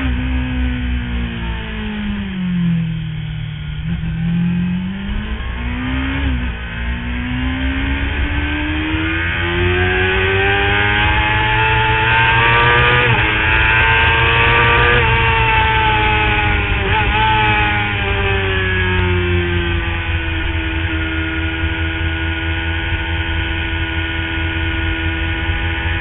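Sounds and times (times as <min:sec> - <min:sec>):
motorcycle engine accelerating: 0:00.0 - 0:26.0.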